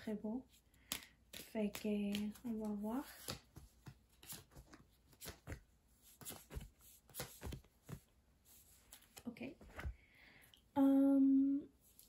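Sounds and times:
cards tapping and sliding: 0.8 - 8.1.

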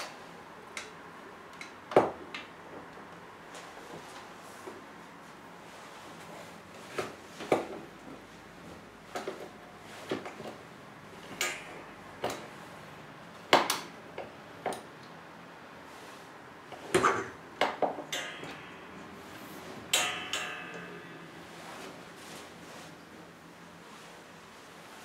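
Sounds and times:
springs ringing: 11.3 - 12.7, 18.0 - 22.3.

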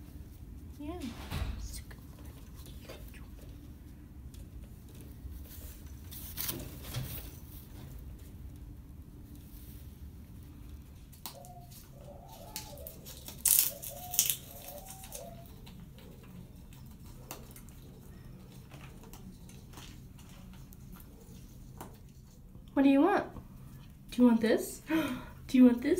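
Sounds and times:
macaw cooing murmurs: 11.3 - 16.4
sharp crunching cracks: 12.4 - 15.4.

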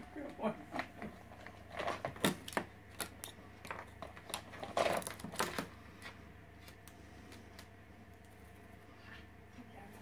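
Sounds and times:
plastic toys clattering in bowl: 3.6 - 5.7.

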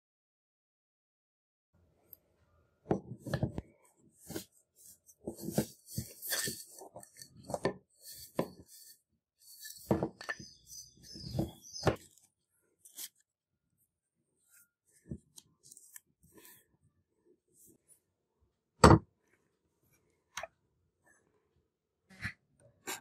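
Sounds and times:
rustling and scraping: 2.9 - 13.3.

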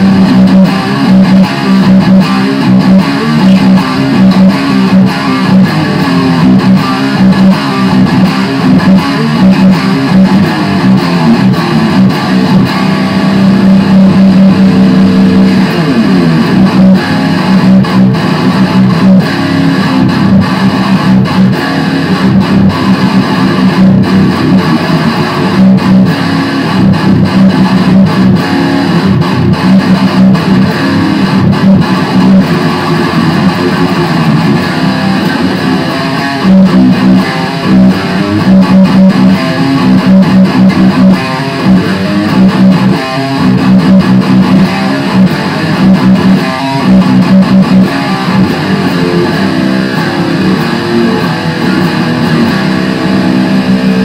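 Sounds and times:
distorted electric guitar riffing: 0.0 - 54.0.

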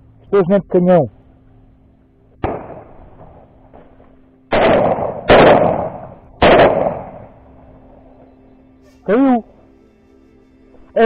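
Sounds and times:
shotgun shots: 2.4 - 3.8, 4.5 - 7.5.

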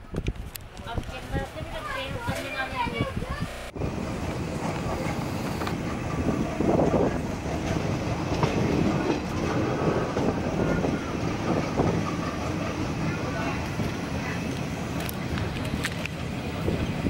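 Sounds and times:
train wheels rumbling on rail: 0.0 - 17.0
wheels clacking on rail joints: 3.9 - 17.0.

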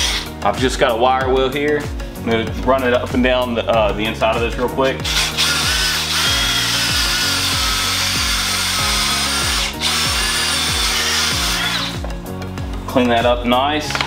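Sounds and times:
drill wire brush scraping metal: 5.0 - 12.0.

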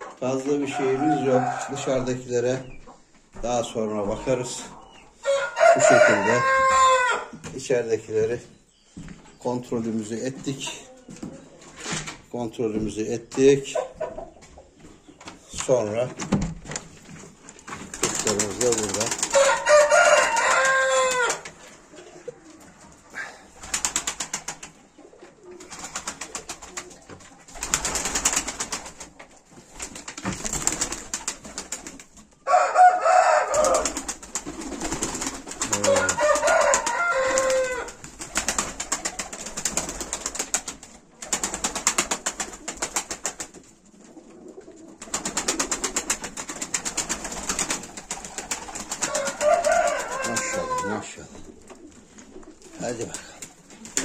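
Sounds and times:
pigeons cooing: 17.9 - 54.0.

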